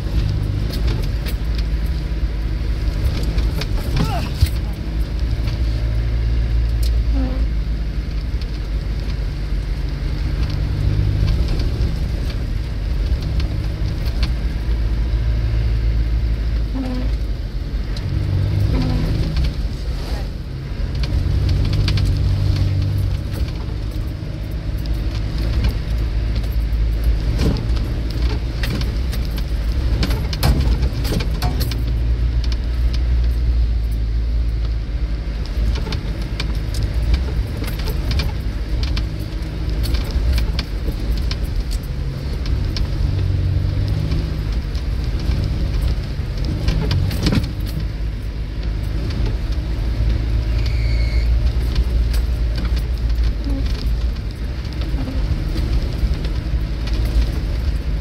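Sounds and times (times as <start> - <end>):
body knocks and rattles: 0.0 - 7.0, 8.0 - 15.2, 20.7 - 50.5, 51.3 - 58.0
engine drone under load: 0.0 - 58.0
short squeak: 50.4 - 51.4.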